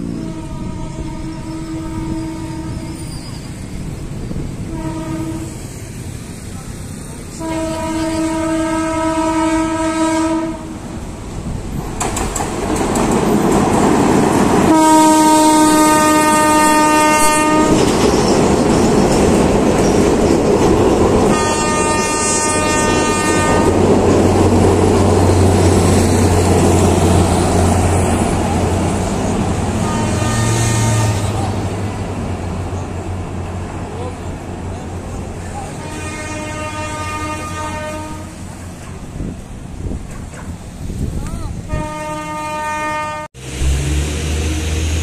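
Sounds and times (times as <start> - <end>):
train horn blasts: 0.0 - 3.5, 4.6 - 5.8, 7.3 - 10.8, 14.6 - 18.0, 21.2 - 23.9, 29.7 - 31.6, 35.7 - 38.6, 41.7 - 43.8
train running past: 0.0 - 45.0
low engine drone: 43.4 - 45.0.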